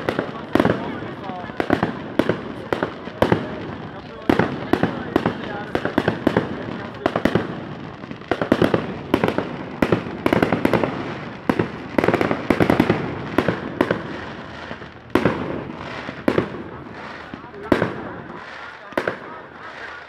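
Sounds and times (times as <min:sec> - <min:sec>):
firework shells bursting: 0:04.4 - 0:19.2.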